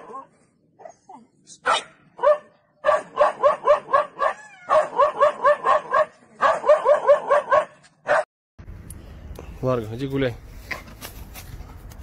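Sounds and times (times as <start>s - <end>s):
dog barking rapidly: 1.6s - 8.3s.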